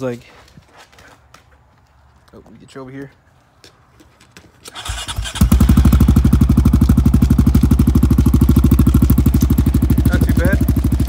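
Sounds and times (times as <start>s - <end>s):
engine cranking and idling: 4.7s - 11.0s.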